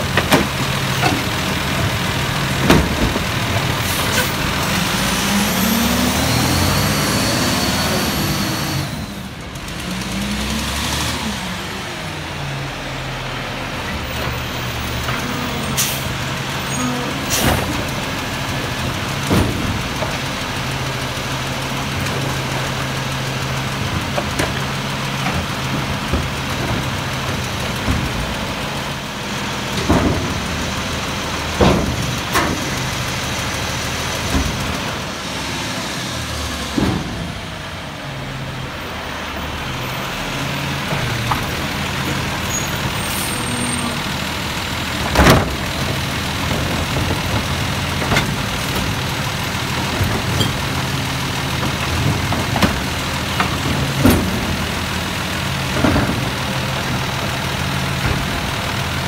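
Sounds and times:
truck knocks and clunks: 0.0 - 7.2, 12.3 - 59.0
diesel engine idling: 11.4 - 59.0.

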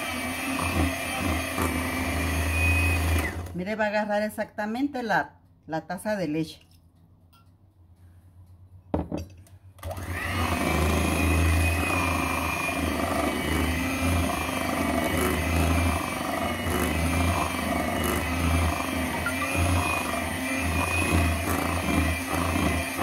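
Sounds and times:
electric hand mixer running: 0.0 - 3.5, 9.8 - 23.0
knock: 8.9 - 9.3.

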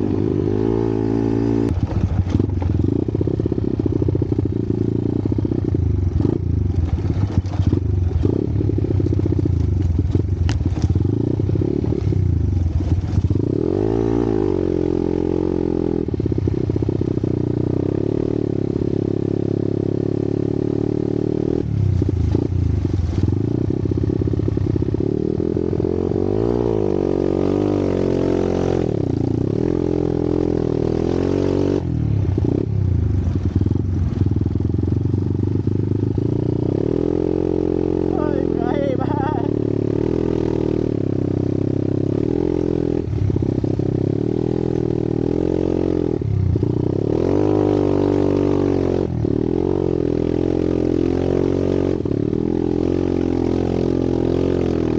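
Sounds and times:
dirt bike engine revving: 0.0 - 35.0, 36.0 - 54.9
bike rattling over bumps: 1.7 - 4.5, 5.5 - 13.5.

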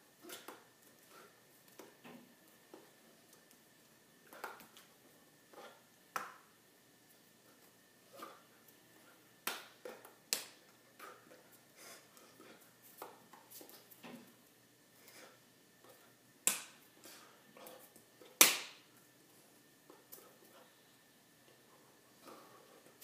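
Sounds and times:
hands slapping and tapping: 9.4 - 10.7, 16.4 - 16.8, 18.4 - 18.8.

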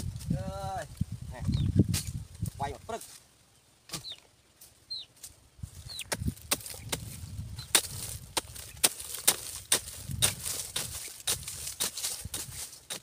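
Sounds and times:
metal hoe chopping soil: 6.0 - 13.0.

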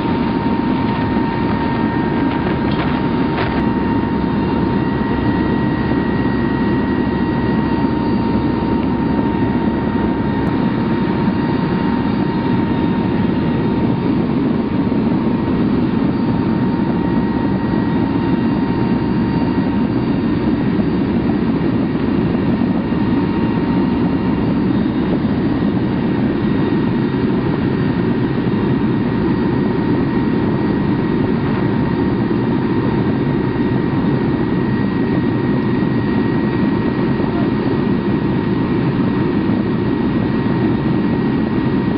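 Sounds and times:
aircraft engine roar: 0.0 - 41.9.

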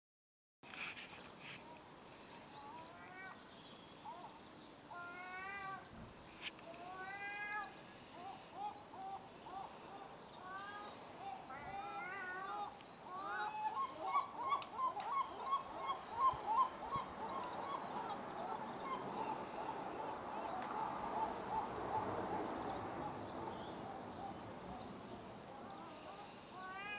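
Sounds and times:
gulls calling: 8.2 - 24.4.

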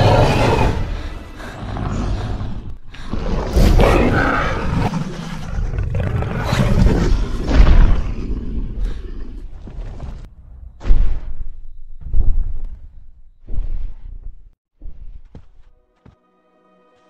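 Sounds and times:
deep dinosaur roaring: 0.0 - 9.2.

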